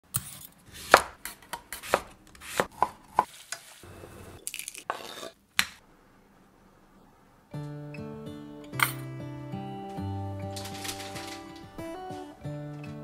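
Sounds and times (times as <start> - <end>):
knife chopping carrot on board: 0.2 - 3.3
eggshell crackling: 4.4 - 5.8.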